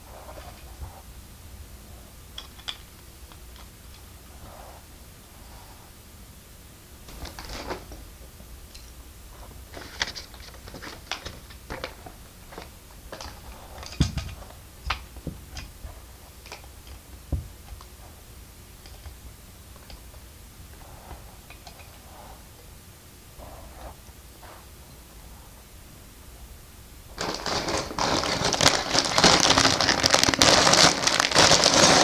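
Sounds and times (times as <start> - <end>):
plastic pieces clicking and rattling: 27.2 - 32.0.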